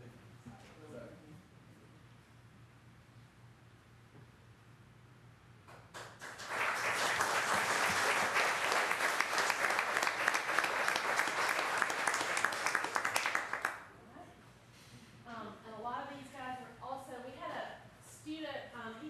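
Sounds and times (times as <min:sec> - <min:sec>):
audience applauding: 0:06.0 - 0:13.9.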